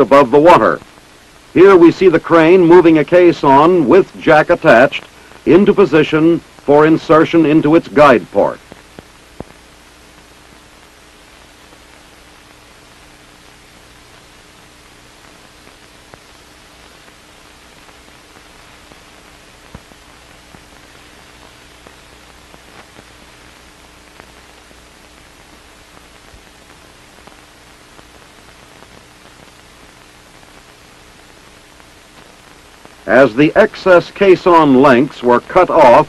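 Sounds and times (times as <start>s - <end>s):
faint hum: 0.0s - 36.0s
film soundtrack hiss: 0.0s - 36.0s
faint clicks and pops: 8.6s - 33.1s.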